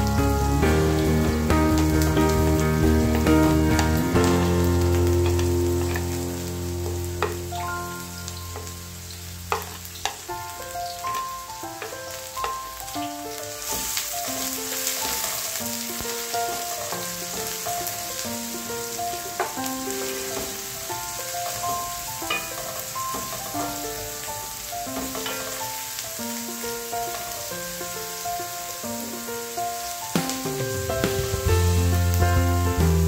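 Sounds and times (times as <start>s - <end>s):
onions sizzling in a pan: 0.0s - 33.0s
soft background music: 0.0s - 33.0s
wooden spoon scraping a pan: 24.9s - 25.8s.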